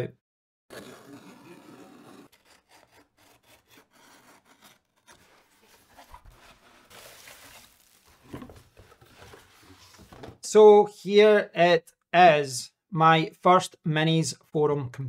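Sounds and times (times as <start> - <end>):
cardboard box scraping: 0.7 - 10.4
packing paper rustling: 4.5 - 10.4.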